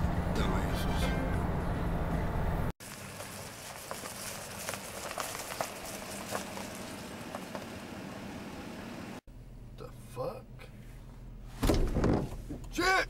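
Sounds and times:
outdoor hiss: 2.8s - 9.2s.

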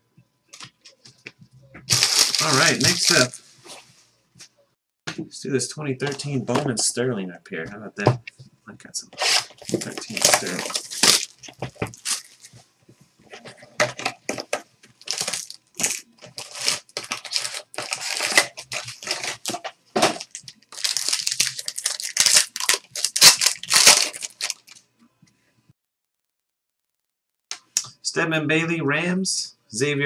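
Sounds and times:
plastic and foil crinkling: 1.9s - 3.6s, 9.2s - 12.6s, 13.3s - 24.8s.

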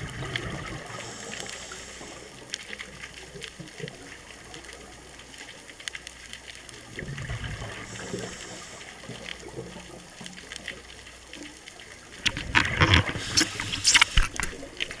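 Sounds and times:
gurgling bubble bursts: 0.0s - 1.0s, 6.9s - 8.1s
low underwater wash: 0.0s - 15.0s.

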